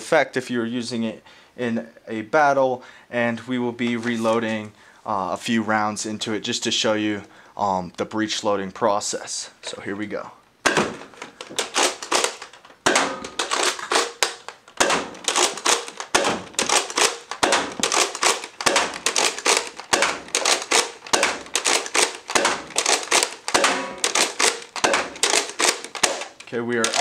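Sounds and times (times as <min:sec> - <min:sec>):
toy blaster clacks and pops: 0:11.2 - 0:27.0.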